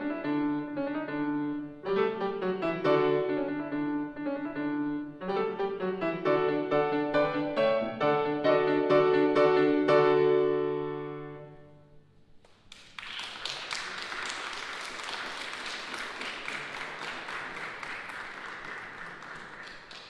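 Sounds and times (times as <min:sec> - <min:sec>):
piano chord ringing: 0:00.0 - 0:12.0
audience applauding: 0:12.4 - 0:20.0.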